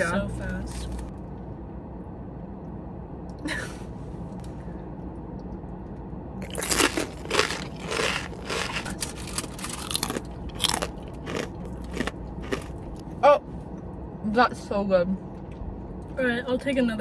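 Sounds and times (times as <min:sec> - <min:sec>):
cookie crunching: 0:06.4 - 0:13.0.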